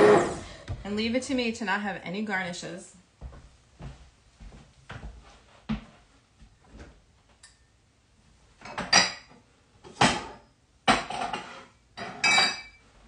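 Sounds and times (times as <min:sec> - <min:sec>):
dishes and utensils clattering: 0:08.6 - 0:12.8.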